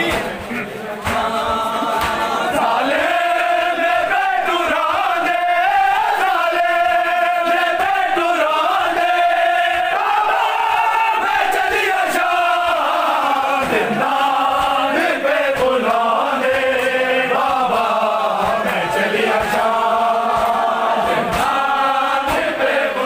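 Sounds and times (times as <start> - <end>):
men chanting together: 0.0 - 23.0
hands beating on bare chests: 12.8 - 22.7.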